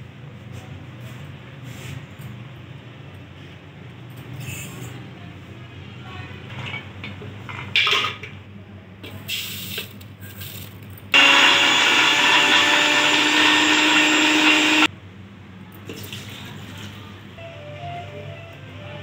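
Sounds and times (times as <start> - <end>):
blender motor grinding: 11.2 - 14.9.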